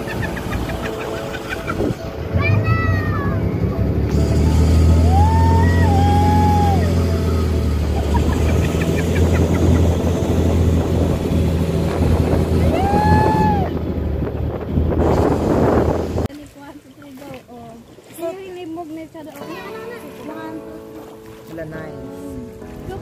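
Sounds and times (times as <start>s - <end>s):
motorboat engine humming: 0.0s - 23.0s
person crying out: 5.1s - 7.6s.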